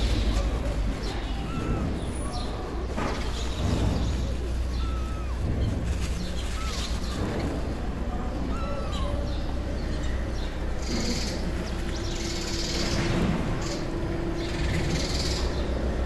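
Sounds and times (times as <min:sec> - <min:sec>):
paper tissue rustling: 0:00.0 - 0:07.9
low street rumble: 0:00.0 - 0:16.0
kitten mewing: 0:00.4 - 0:09.6.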